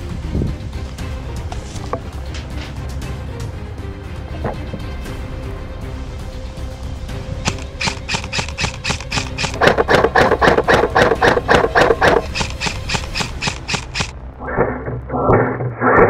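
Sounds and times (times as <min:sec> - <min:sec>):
airsoft rifle rapid firing: 0:07.4 - 0:14.1.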